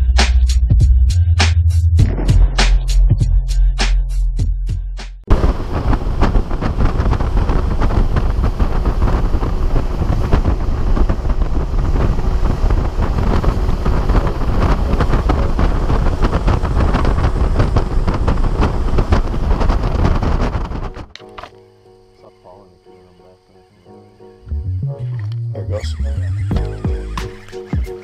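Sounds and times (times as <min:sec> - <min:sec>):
water noise: 0:05.3 - 0:21.1
wind buffeting microphone: 0:05.3 - 0:21.1.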